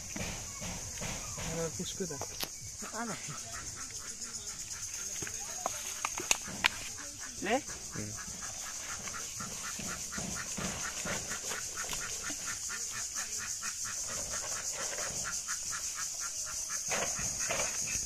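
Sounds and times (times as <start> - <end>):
fast pulsing animal call: 6.4 - 18.0.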